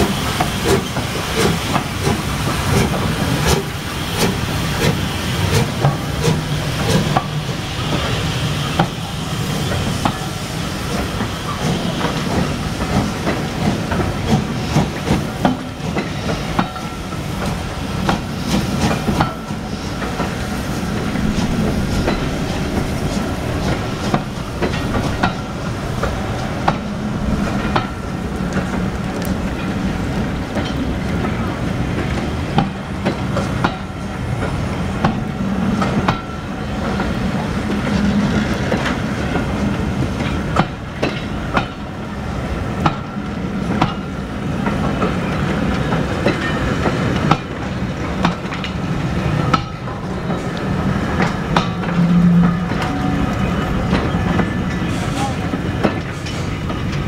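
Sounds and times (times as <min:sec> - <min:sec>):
steam locomotive drain cocks hissing: 0:00.0 - 0:30.9
train wheels clicking over rail joints: 0:00.0 - 0:57.0.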